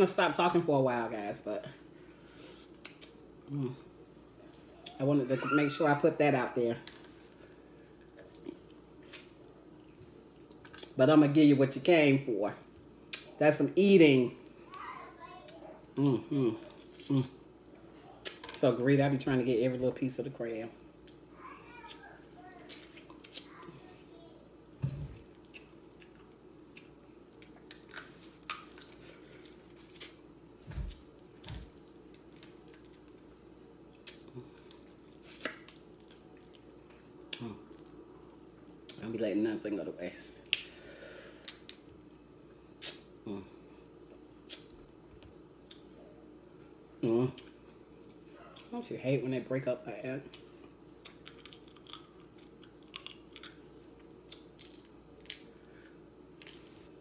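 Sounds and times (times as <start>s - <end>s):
steady low hum: 0.0s - 57.0s
crab shells cracking: 26.8s - 30.2s, 51.0s - 53.6s, 54.3s - 55.5s
chewing seafood: 50.3s - 55.5s.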